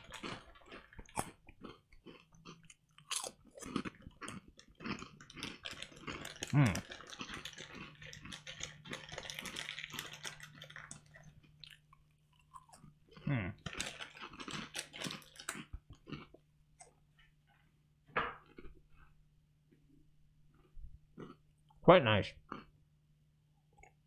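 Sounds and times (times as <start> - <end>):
chewing and crunching rice crackers: 0.0 - 17.2, 20.4 - 21.8, 22.4 - 22.8.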